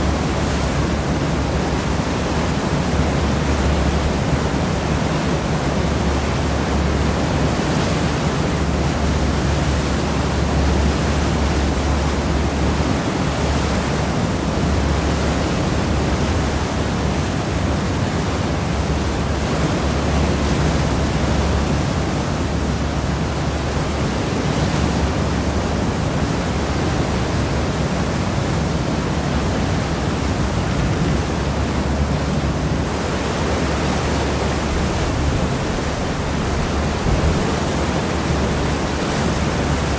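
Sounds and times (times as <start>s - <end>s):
churned water rushing: 0.0s - 39.9s
low rumble: 34.3s - 39.9s.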